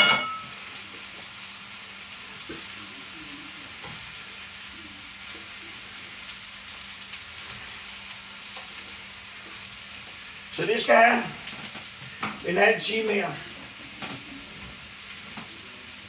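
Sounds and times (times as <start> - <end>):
utensil clinking on cookware: 0.0 - 0.5
peppers sizzling in a pot: 0.0 - 16.0.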